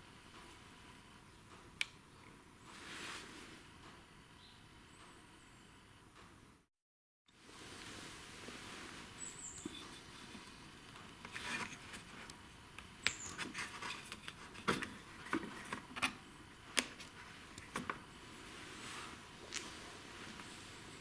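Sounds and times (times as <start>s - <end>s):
rubbing and scraping: 11.2s - 12.3s, 13.2s - 16.2s.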